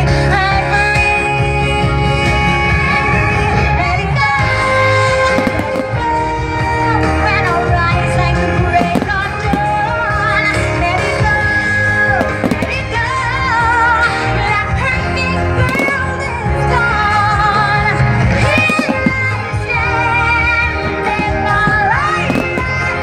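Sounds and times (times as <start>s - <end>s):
music with singer: 0.0s - 23.0s
firework bangs: 5.2s - 6.3s, 8.8s - 10.0s, 12.2s - 13.1s, 15.6s - 16.3s, 18.4s - 19.9s, 20.8s - 23.0s.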